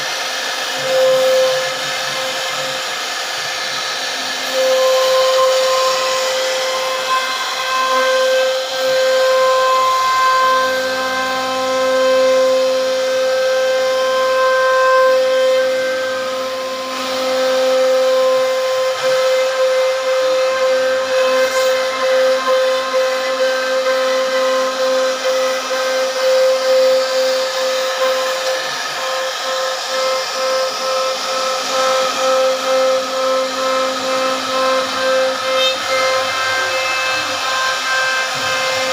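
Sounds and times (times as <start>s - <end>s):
bit milling wood: 0.0s - 38.9s
router spindle whining: 0.0s - 38.9s.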